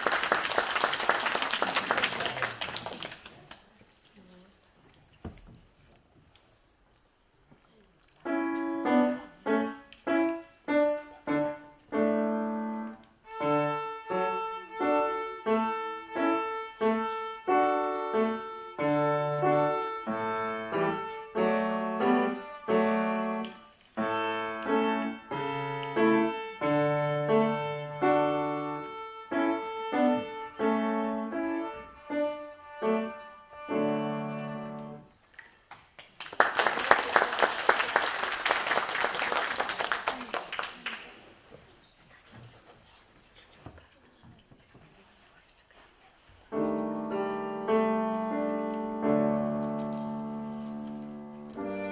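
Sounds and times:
applause: 0:00.0 - 0:03.7, 0:35.3 - 0:41.4
piano accompaniment: 0:08.2 - 0:35.1, 0:46.5 - 0:51.9
violin playing: 0:12.8 - 0:35.1, 0:46.6 - 0:51.9.

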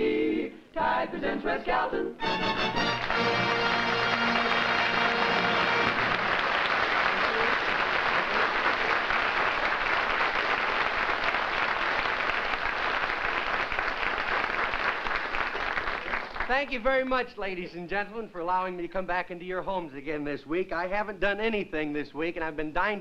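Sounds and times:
audience applauding: 0:02.3 - 0:16.5.

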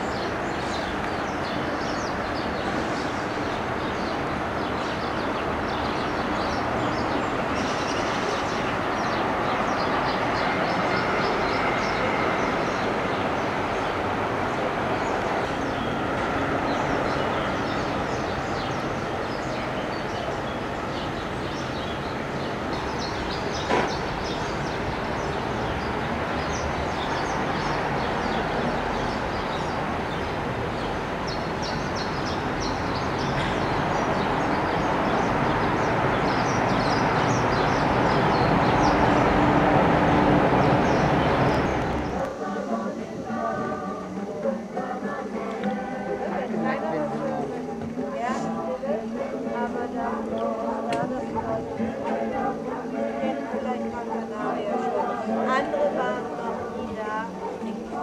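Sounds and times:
small birds chirping: 0:00.0 - 0:39.4, 0:40.6 - 0:42.3
broad outdoor hum: 0:00.0 - 0:58.0.

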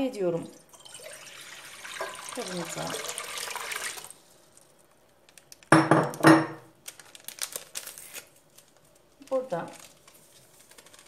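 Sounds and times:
water pouring into glass bowl: 0:00.4 - 0:04.2.

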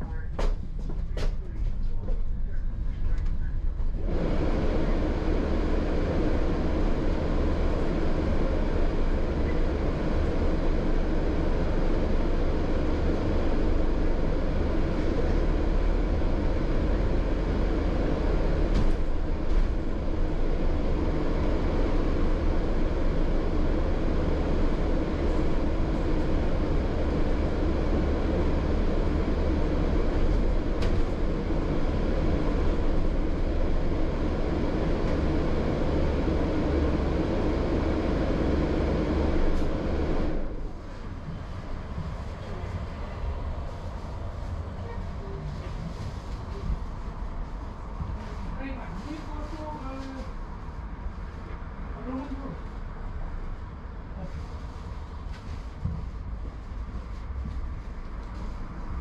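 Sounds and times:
bus engine drone: 0:00.0 - 0:59.0
road noise: 0:00.0 - 0:59.0.

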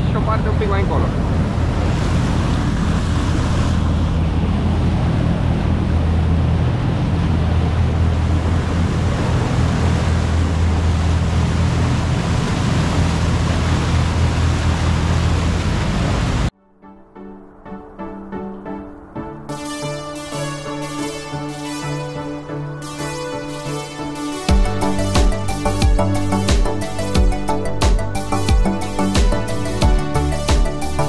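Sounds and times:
rushing water: 0:00.0 - 0:16.5, 0:18.7 - 0:31.0
wind: 0:00.0 - 0:16.5
boat engine droning: 0:00.0 - 0:31.0.

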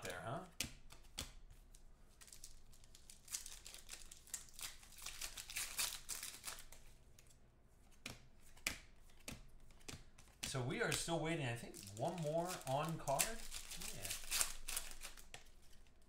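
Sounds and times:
plastic sleeves crinkling: 0:01.6 - 0:07.4, 0:10.3 - 0:16.0.

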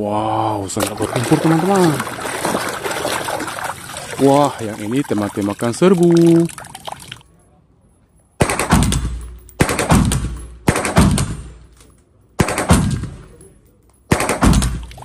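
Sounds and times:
rifle gunshots with booming echo: 0:08.4 - 0:11.7, 0:12.4 - 0:13.4, 0:14.1 - 0:14.9.

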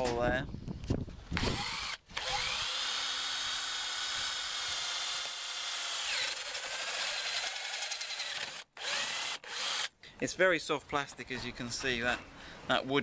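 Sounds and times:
power drill cutting plastic: 0:01.4 - 0:09.9.

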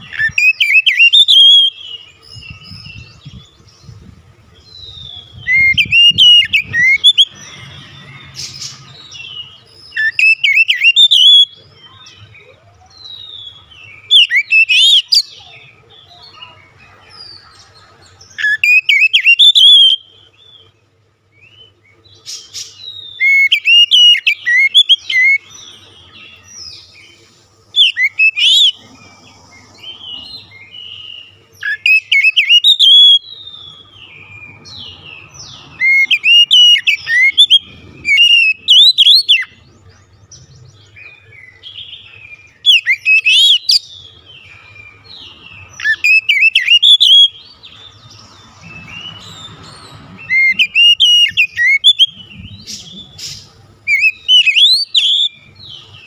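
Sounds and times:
bird singing whistled phrases: 0:00.0 - 0:03.1, 0:04.7 - 0:08.2, 0:09.2 - 0:16.2, 0:18.4 - 0:20.1, 0:22.7 - 0:25.5, 0:27.7 - 0:28.8, 0:30.6 - 0:34.8, 0:35.4 - 0:39.6, 0:41.0 - 0:45.0, 0:45.8 - 0:47.5, 0:50.2 - 0:55.7.

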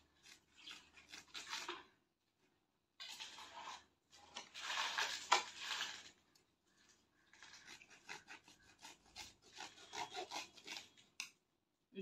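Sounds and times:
knife sawing through sack: 0:07.4 - 0:11.0.

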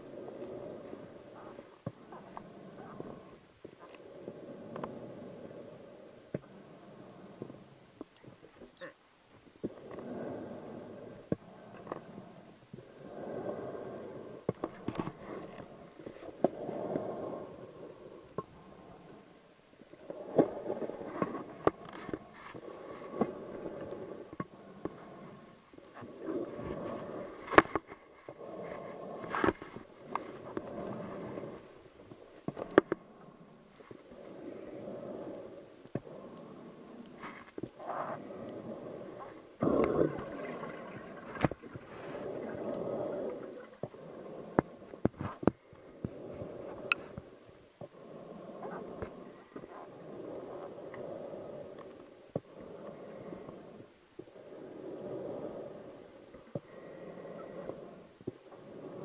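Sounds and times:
water gurgling and rushing: 0:19.9 - 0:59.0.

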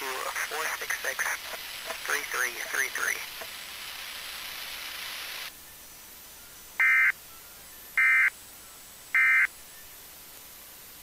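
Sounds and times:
static hiss: 0:00.0 - 0:11.0
digital data bursts: 0:06.7 - 0:07.2.

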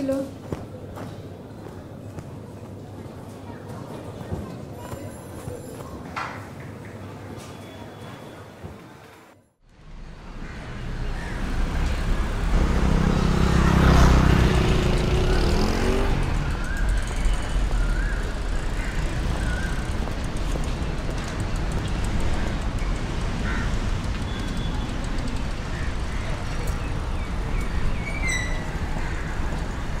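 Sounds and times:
steady traffic hum: 0:00.0 - 0:30.0
vehicle engine passing: 0:09.8 - 0:30.0.

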